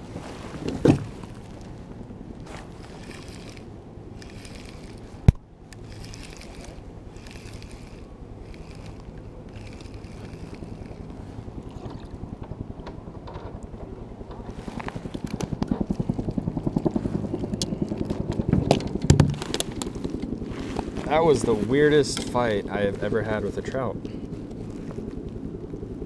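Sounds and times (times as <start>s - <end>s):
fishing reel: 2.8s - 12.1s.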